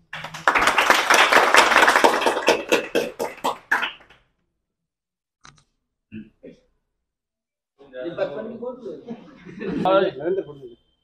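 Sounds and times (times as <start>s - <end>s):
small group applauding: 0.0s - 4.3s.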